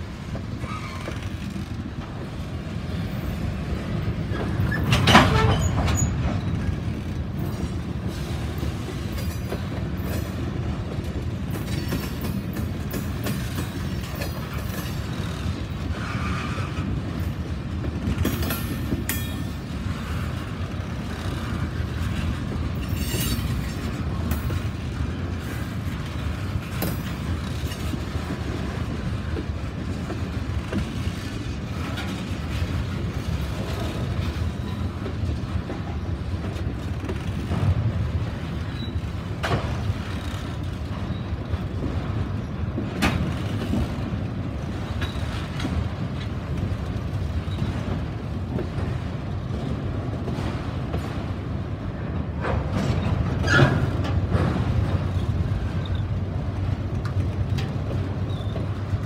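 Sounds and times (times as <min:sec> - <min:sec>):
freight train rumbling past: 0:00.0 - 0:59.0
wheels clicking over rail joints: 0:00.0 - 0:59.0.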